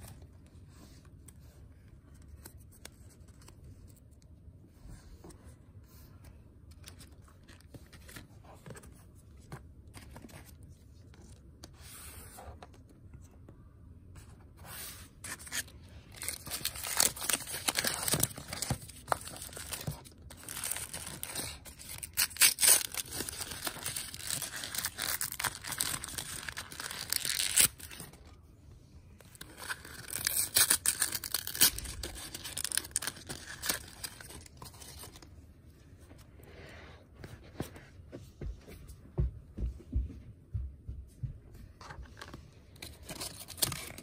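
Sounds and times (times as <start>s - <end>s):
wrapper being torn and crumpled: 16.2s - 28.0s, 29.5s - 35.0s.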